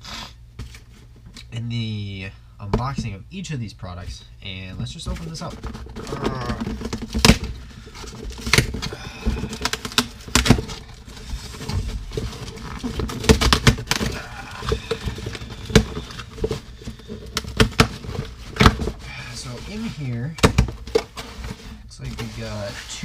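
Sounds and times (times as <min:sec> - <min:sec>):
cardboard tearing: 0:05.2 - 0:23.0
packing tape ripping off cardboard: 0:08.2 - 0:19.0.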